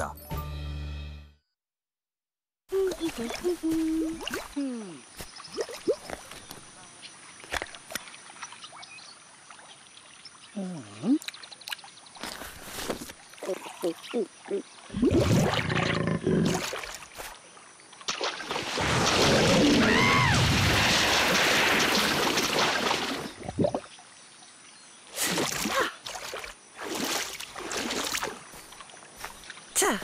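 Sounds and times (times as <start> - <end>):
heavy water splashing: 14.9 - 17.3, 18.0 - 23.8, 25.2 - 29.0.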